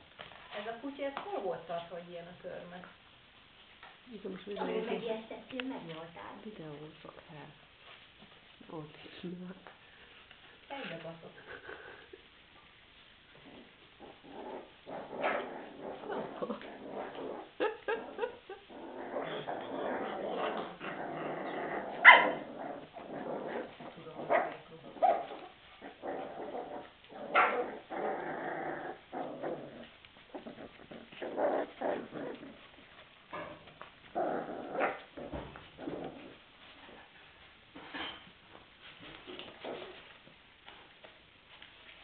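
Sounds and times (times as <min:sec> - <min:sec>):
puppies growling: 0:13.3 - 0:37.2, 0:39.1 - 0:40.2.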